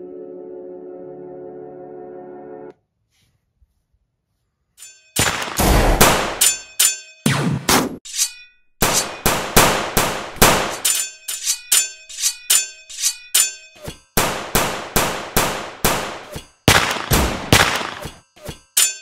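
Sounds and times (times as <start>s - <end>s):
sharp metallic clangs: 4.8s - 15.0s, 15.7s - 19.0s.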